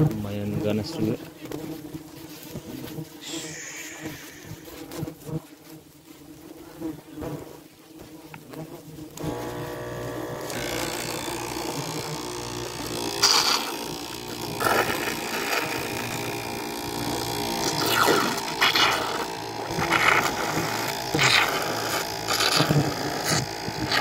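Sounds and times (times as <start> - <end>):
electric motor humming: 3.2 - 5.2, 9.2 - 24.0
hissing bursts: 3.2 - 5.2, 10.4 - 24.0.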